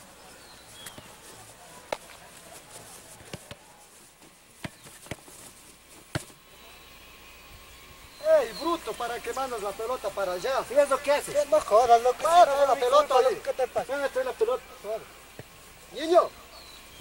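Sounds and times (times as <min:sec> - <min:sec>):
faint steady hiss: 0:00.0 - 0:17.0
football kicked on grass: 0:00.7 - 0:06.4, 0:15.3 - 0:15.6.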